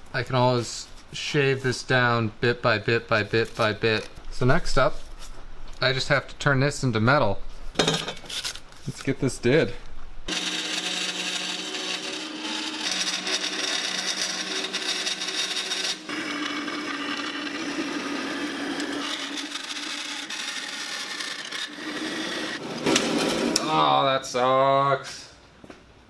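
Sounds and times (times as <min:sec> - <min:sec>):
band saw cutting metal: 0:10.3 - 0:23.7.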